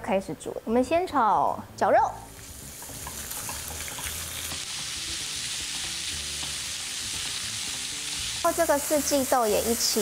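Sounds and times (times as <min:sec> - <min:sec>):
meat sizzling in a frying pan: 0:02.3 - 0:10.0
spatula tapping and scraping pan: 0:02.8 - 0:05.0, 0:05.7 - 0:07.4.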